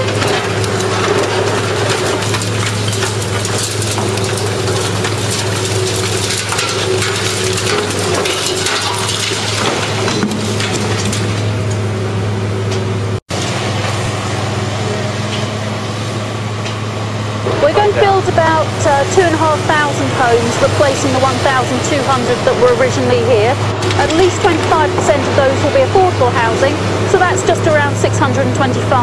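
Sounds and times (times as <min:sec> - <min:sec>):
concrete crunching and cracking: 0:00.0 - 0:11.9
demolition machinery engine drone: 0:00.0 - 0:29.0.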